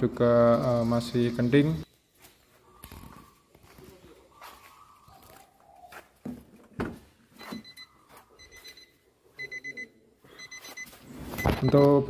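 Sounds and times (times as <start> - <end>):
car door warning chime beeps: 7.4 - 12.0.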